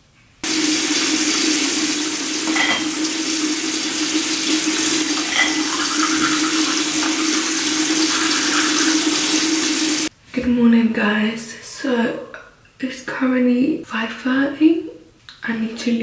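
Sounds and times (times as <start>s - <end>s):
tap running into sink: 0.5s - 9.8s.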